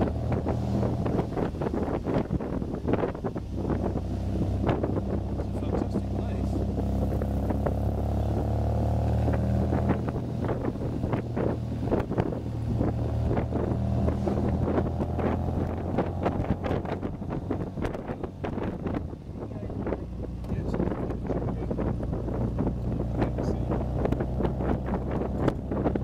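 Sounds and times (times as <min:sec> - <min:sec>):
car engine running: 0:00.0 - 0:26.0
wind buffeting microphone: 0:00.0 - 0:26.0.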